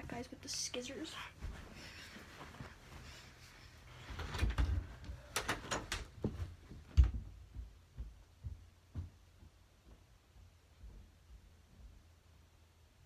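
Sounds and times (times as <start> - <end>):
knocks and clicks of movement: 4.0 - 10.0.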